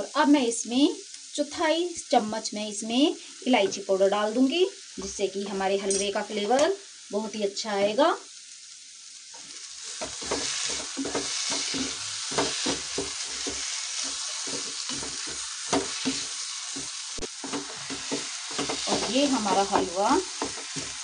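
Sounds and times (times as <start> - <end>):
steady sizzle: 0.0 - 21.0
wooden spatula scraping pan: 9.4 - 21.0.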